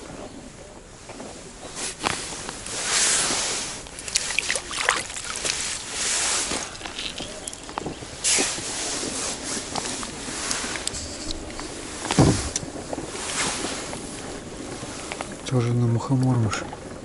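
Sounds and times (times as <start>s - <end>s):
water splashing and sloshing: 1.0s - 17.0s
fish knocking and slapping on ice: 3.8s - 8.6s.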